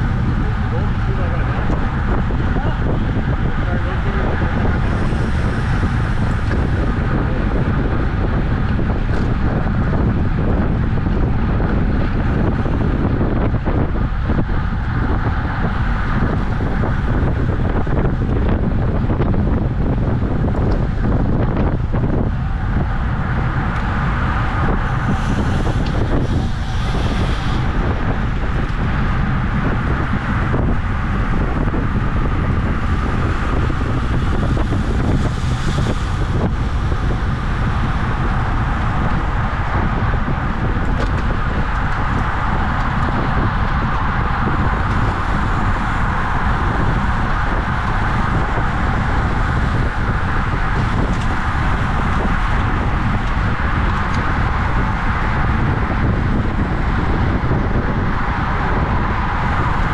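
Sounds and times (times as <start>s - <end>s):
wind buffeting microphone: 0.0s - 59.9s.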